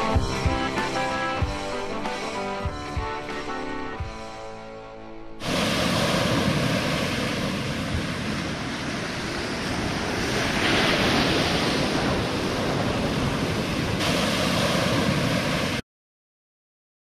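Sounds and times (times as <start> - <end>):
shore break surging and hissing: 5.1 - 15.8
wind noise on microphone: 5.4 - 15.8.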